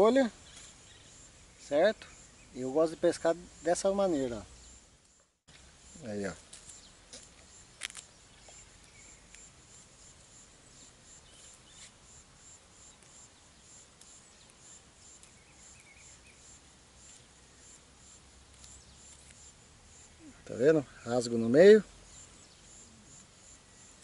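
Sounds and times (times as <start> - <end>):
high-pitched insect chirp: 0.0 - 24.0
faint bird chirps: 0.4 - 5.3, 6.7 - 9.5, 10.6 - 12.0, 12.8 - 16.6, 19.9 - 24.0
small rustles: 3.8 - 16.4, 17.0 - 17.6, 18.4 - 19.6.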